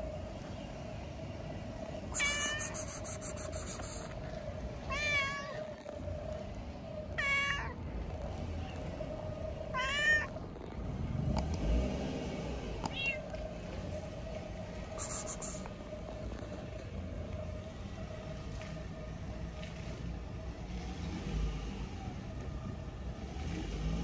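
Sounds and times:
cat meowing: 2.1 - 3.8, 4.9 - 5.8, 7.2 - 7.8, 9.7 - 10.4, 12.9 - 13.3, 15.0 - 15.6.

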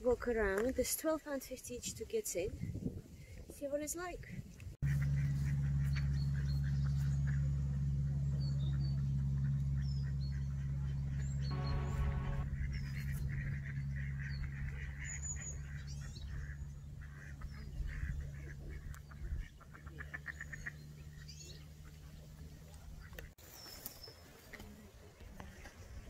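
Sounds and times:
low steady hum: 4.8 - 19.4
waterfowl calling: 4.8 - 21.2.

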